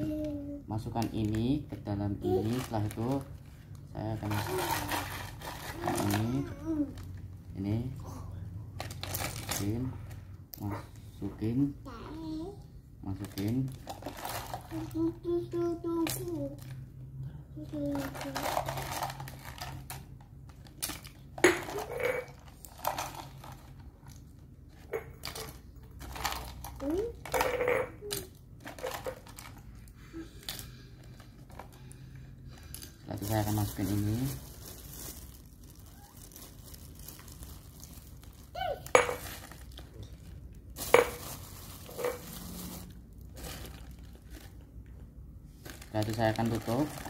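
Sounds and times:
plastic and ice rustling: 0.0s - 7.9s, 8.8s - 10.2s, 11.4s - 16.7s, 17.6s - 29.9s, 32.6s - 44.8s, 45.5s - 47.0s.

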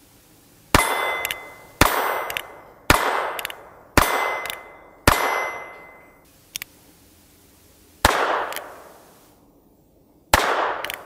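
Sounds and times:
revolver gunshots: 0.7s - 6.0s, 8.0s - 9.0s, 10.3s - 11.0s
light click: 6.5s - 6.7s.

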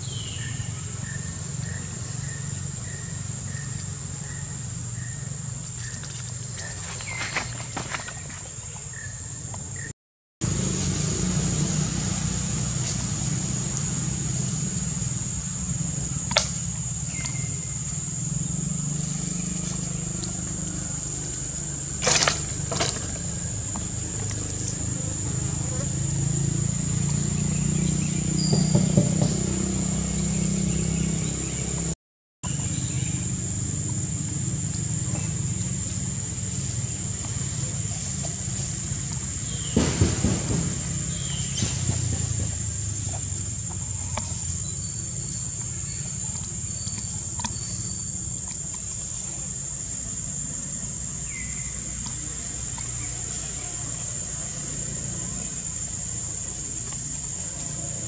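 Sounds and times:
high-pitched insect drone: 9.8s - 58.0s
low hum: 10.4s - 28.6s.

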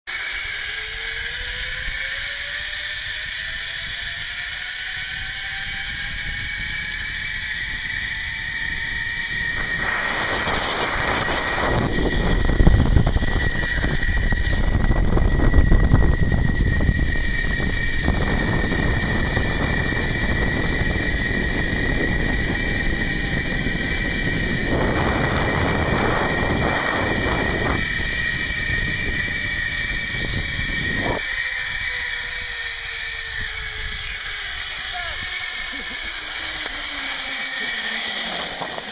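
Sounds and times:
zipline pulleys whining on cable: 0.1s - 38.9s
wind buffeting microphone: 5.0s - 38.9s.

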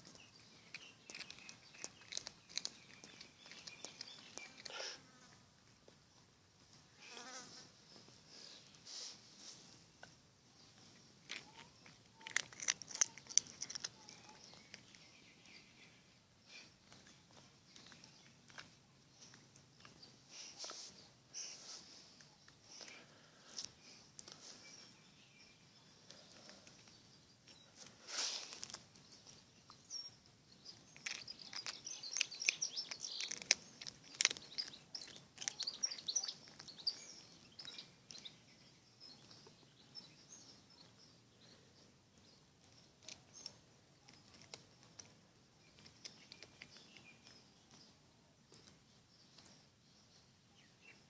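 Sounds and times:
sharp crackles and clicks: 0.0s - 4.8s, 11.2s - 15.1s, 30.7s - 38.2s
small birds chirping: 0.0s - 51.0s.

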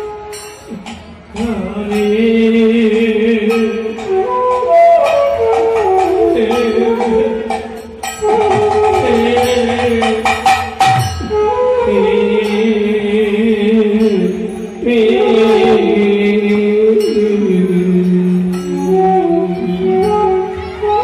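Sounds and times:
light percussion strikes: 0.0s - 14.9s
man chanting through a pa: 11.8s - 20.2s.

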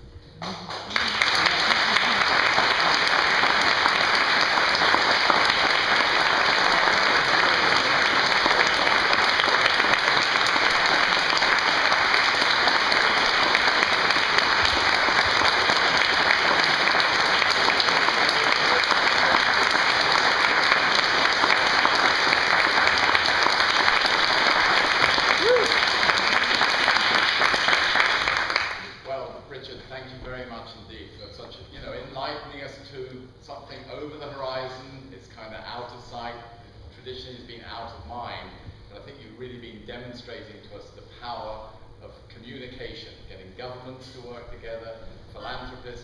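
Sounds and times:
audience applauding: 0.4s - 29.0s.

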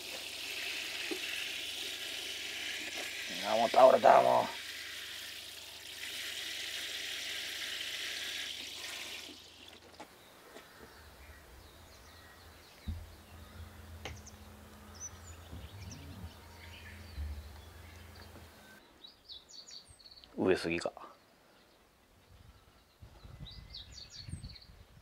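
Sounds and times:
watering can showering water: 0.0s - 9.9s
faint bird chirps: 10.5s - 20.4s
low hum: 11.0s - 18.8s.

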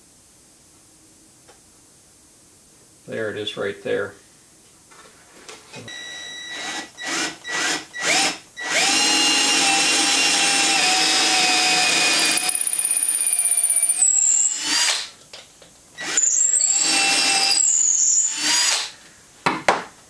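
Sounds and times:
cordless drill boring into wood: 6.5s - 15.1s, 16.0s - 19.0s.

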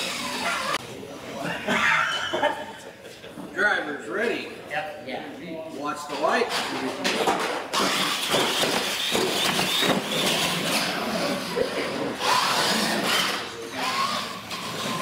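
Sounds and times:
toy truck electric motors whining: 0.0s - 0.8s, 7.7s - 15.0s
voices in a room: 0.8s - 7.8s.

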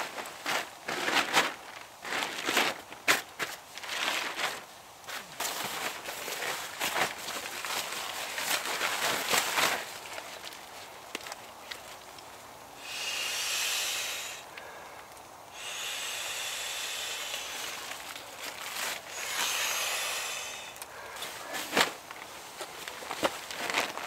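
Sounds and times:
nylon rustling: 0.0s - 12.4s, 17.2s - 24.0s
air rushing: 12.8s - 22.0s.

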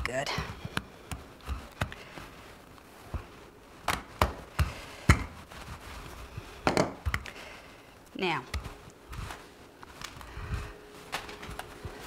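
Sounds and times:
rolling pin knocking on countertop: 6.7s - 7.0s.

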